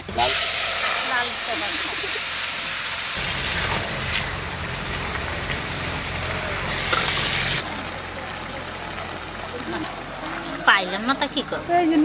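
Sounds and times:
food sizzling in hot oil: 0.0s - 7.6s.

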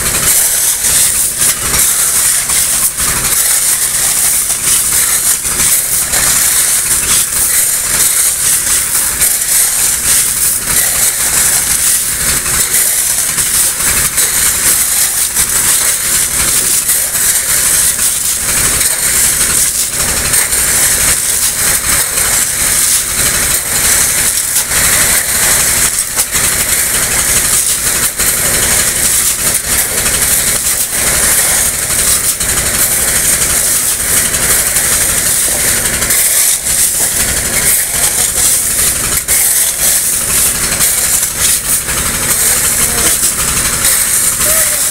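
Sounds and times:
shovels scraping wet gravel: 0.0s - 11.6s
pump engine running: 0.0s - 44.9s
water and gravel gushing from pipe: 0.0s - 44.9s.

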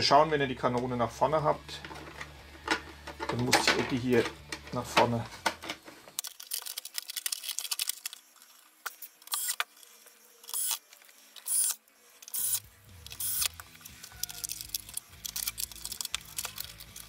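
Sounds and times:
background music: 0.0s - 5.9s, 12.3s - 17.0s
plastic parts clicking: 1.8s - 17.0s.

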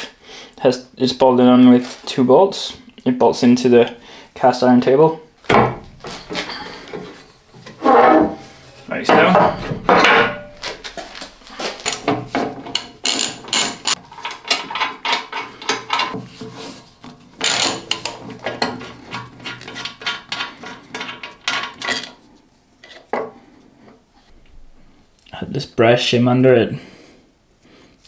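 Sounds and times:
metallic clinks and scrapes: 6.0s - 16.8s.

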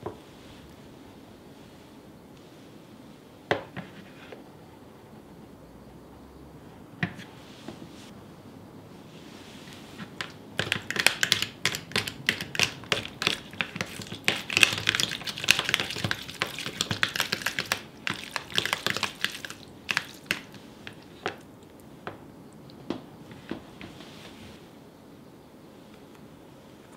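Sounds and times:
fork tapping on plastic tub: 10.2s - 21.4s.

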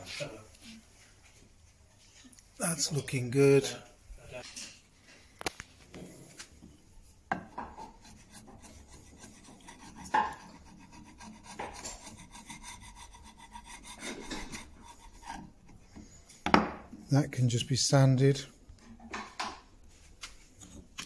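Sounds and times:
chisel scraping paint off wood: 7.4s - 16.0s.

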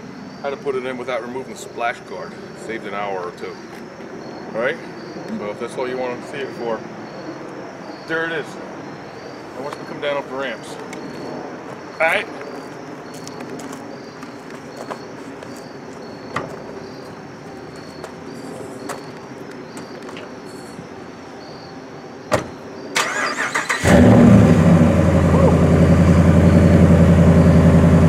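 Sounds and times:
thump: 22.3s - 22.6s
engine idling loudly: 23.8s - 28.0s.

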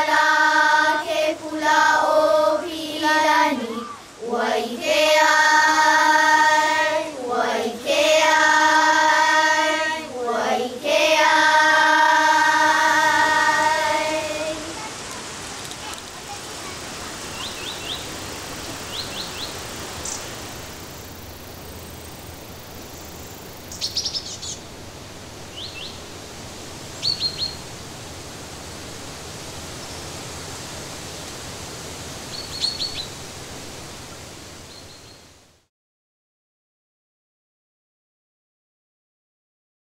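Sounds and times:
children singing: 0.0s - 15.0s
stream hissing: 0.0s - 35.7s
small birds chirping: 14.3s - 21.4s, 22.8s - 24.7s, 25.5s - 26.2s, 26.9s - 27.7s, 32.3s - 33.2s, 34.6s - 35.3s.

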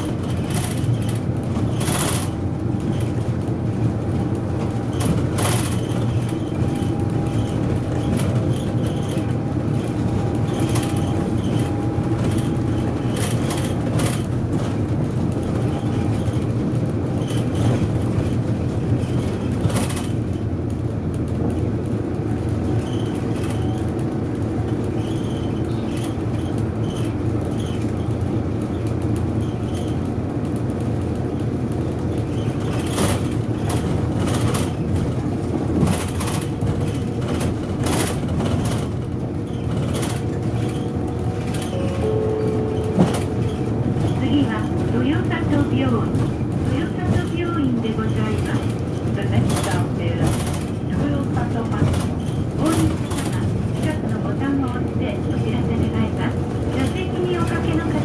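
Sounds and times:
bus engine and road rumble: 0.0s - 58.0s
bodywork knocks and rattles: 31.0s - 41.7s.

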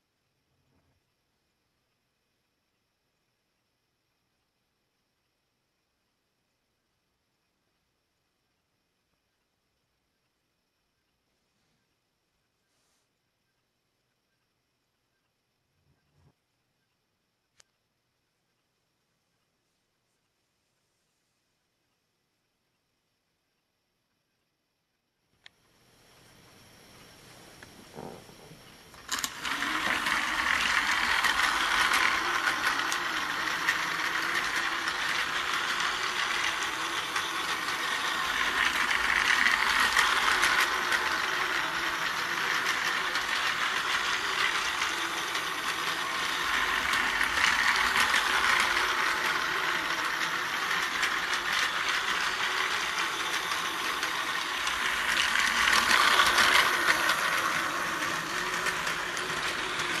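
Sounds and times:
toy train motor whirring: 27.6s - 60.0s
toy train wheels rattling: 29.0s - 60.0s.

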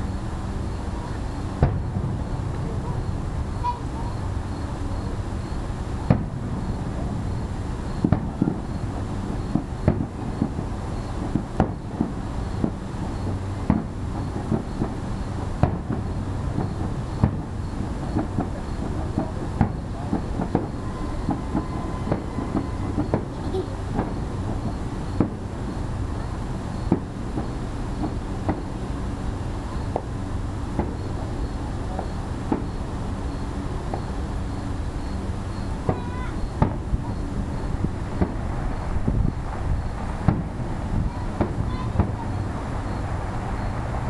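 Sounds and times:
low rumble: 0.0s - 10.8s
firework shells bursting: 6.0s - 44.0s.

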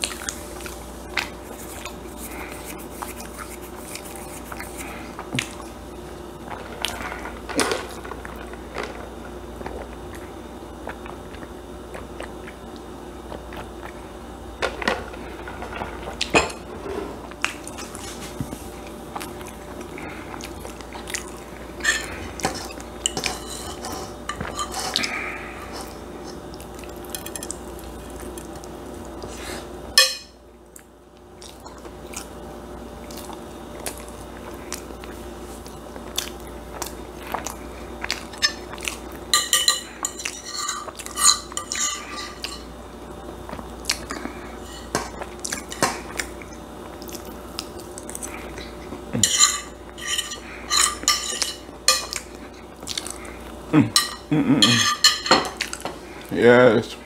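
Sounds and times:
chewing: 0.0s - 5.8s, 9.6s - 14.0s, 17.4s - 29.7s, 30.7s - 32.4s, 33.0s - 42.7s, 43.4s - 56.3s
metal spoon scraping pan: 21.8s - 25.0s, 39.4s - 42.6s, 49.2s - 52.1s.

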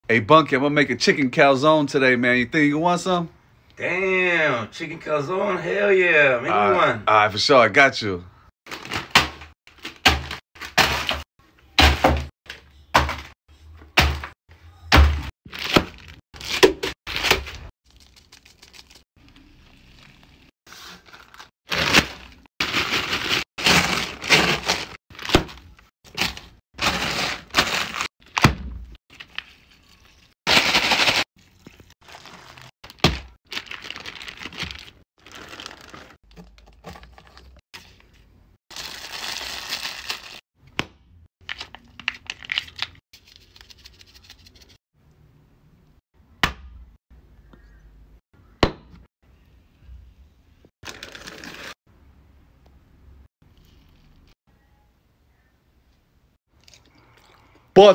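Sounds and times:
plastic bag crinkling: 20.8s - 25.3s, 29.1s - 37.6s, 38.7s - 40.4s, 50.8s - 51.8s
chips crackling: 29.1s - 37.6s, 38.7s - 40.4s.

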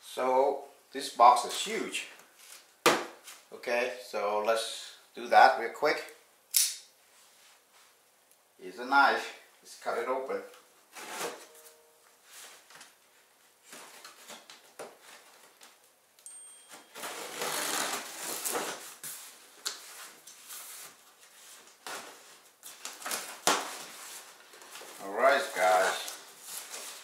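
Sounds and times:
sharp click: 6.5s - 6.9s.

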